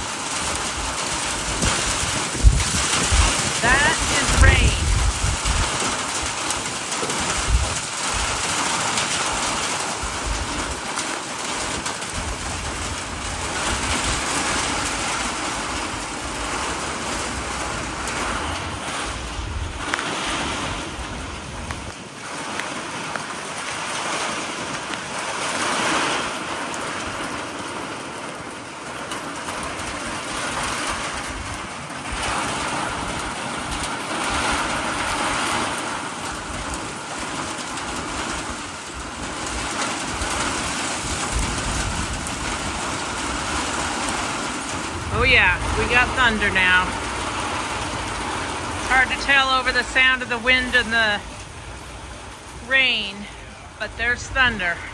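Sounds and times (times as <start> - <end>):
heavy rain pouring: 0.0 - 54.9
wind buffeting microphone: 0.5 - 6.2, 12.1 - 22.0, 38.4 - 48.8.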